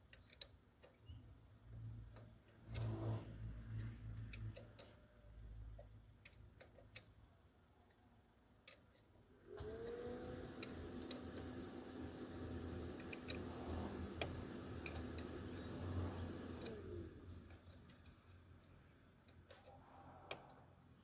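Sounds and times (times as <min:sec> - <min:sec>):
motor humming: 0:09.5 - 0:19.6.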